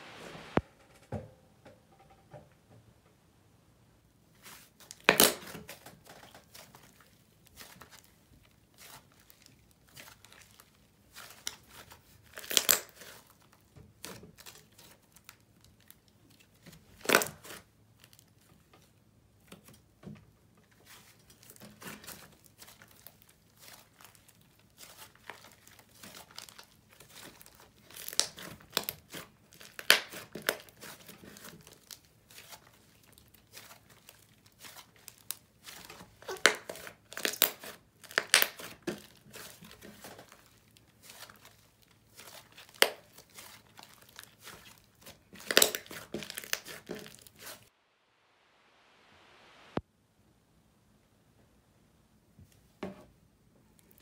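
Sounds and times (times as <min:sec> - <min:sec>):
slime crackling and popping: 0:21.4 - 0:47.7.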